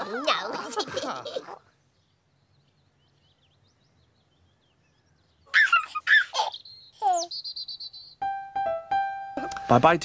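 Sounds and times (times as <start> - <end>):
baby giggling: 5.5 - 7.3.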